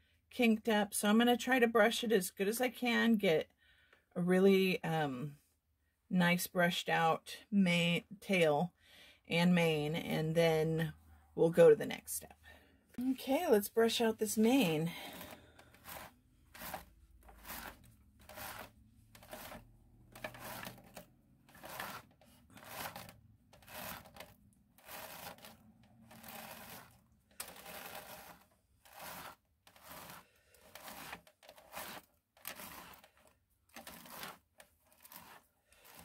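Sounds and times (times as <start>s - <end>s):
hairbrush swishing through hair: 15.0s - 33.1s, 33.8s - 36.0s.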